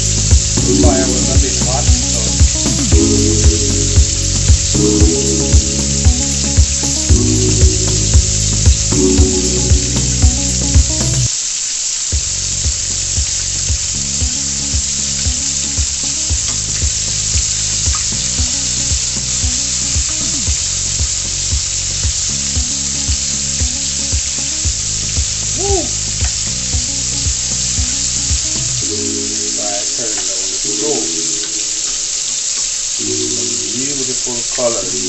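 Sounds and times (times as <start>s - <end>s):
background music with low beat: 0.0s - 11.3s, 12.1s - 29.6s
food deep-frying in sizzling oil: 0.0s - 35.0s.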